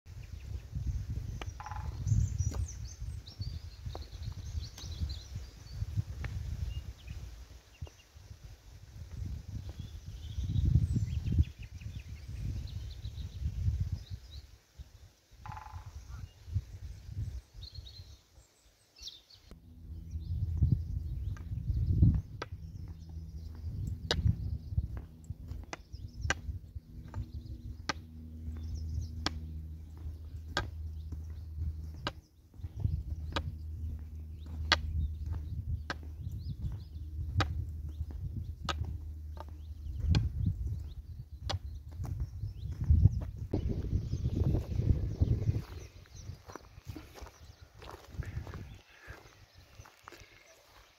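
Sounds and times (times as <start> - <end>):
wind buffeting microphone: 0.1 - 18.2, 19.6 - 50.4
small birds chirping: 0.1 - 50.9
walking stick tapping on pavement: 1.2 - 2.8, 15.4 - 15.8, 21.2 - 42.9
low steady rumble: 19.5 - 48.7.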